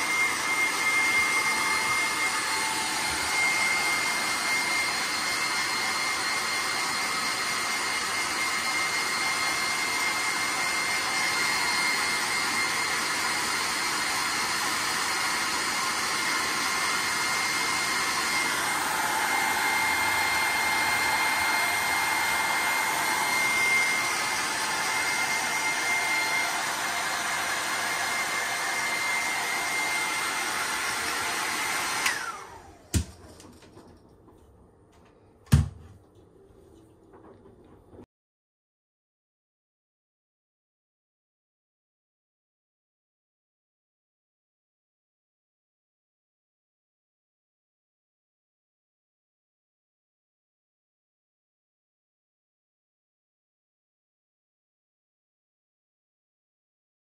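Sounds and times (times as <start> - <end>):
hair dryer blowing: 0.0 - 33.7.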